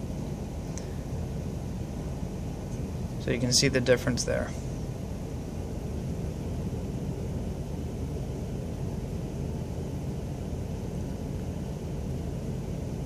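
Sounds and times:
low room rumble: 0.0 - 13.0.

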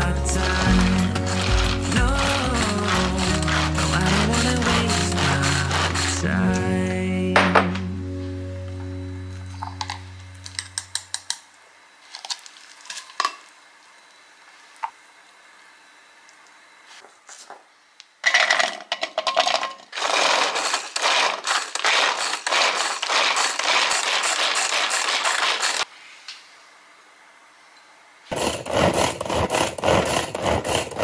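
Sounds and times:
pull-cord food chopper rattling: 0.0 - 6.4, 18.3 - 25.9, 28.3 - 31.0.

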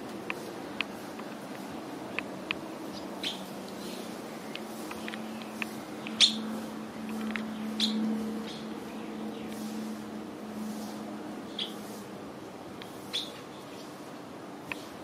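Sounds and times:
bird chip calls: 2.9 - 4.1, 4.9 - 6.5, 7.5 - 8.7, 11.5 - 11.8, 13.1 - 13.4.

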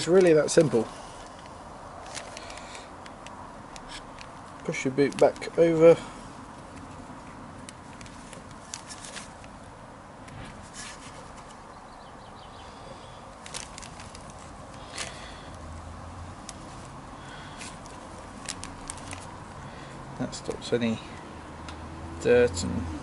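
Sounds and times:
small clicks and scrapes of hands: 0.2 - 5.5, 6.5 - 9.6.

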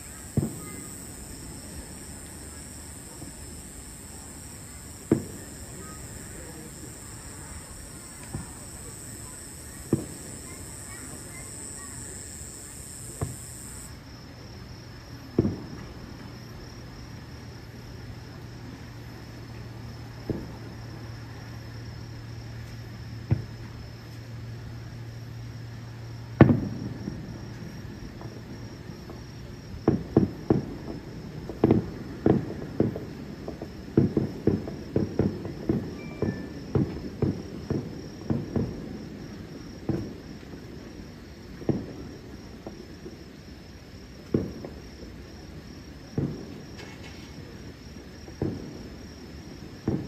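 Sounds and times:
insects trilling: 0.0 - 15.1
distant firework shells bursting: 0.2 - 13.9.

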